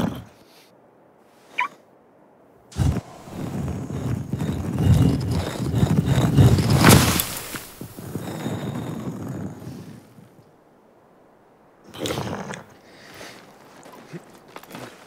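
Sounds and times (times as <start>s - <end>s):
stone grinding rumble: 2.7s - 9.7s.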